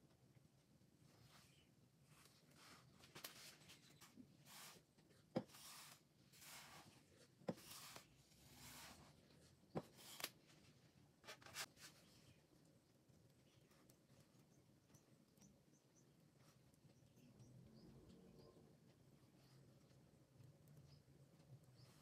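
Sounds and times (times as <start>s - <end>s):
soft kitchen rubs and scrapes: 1.0s - 12.5s.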